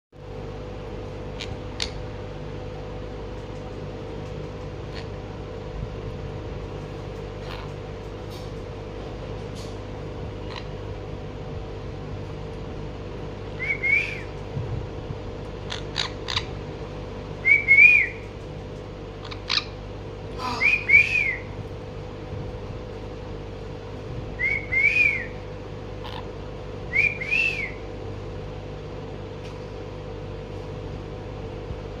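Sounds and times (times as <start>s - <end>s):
room hum: 0.1s - 32.0s
parakeet chirping: 1.3s - 2.0s, 4.8s - 5.2s, 10.4s - 10.8s, 15.7s - 16.6s, 19.2s - 19.8s, 26.0s - 26.4s
parakeet whistled chirp: 13.5s - 14.3s, 17.4s - 18.2s, 20.4s - 21.6s, 24.4s - 25.4s, 26.9s - 27.9s.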